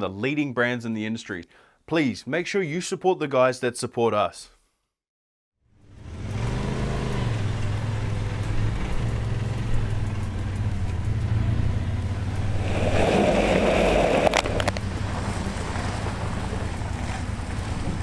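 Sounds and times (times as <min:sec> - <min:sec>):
off-road vehicle engine humming: 0:05.7 - 0:18.0
tyre throwing mud: 0:12.6 - 0:14.9.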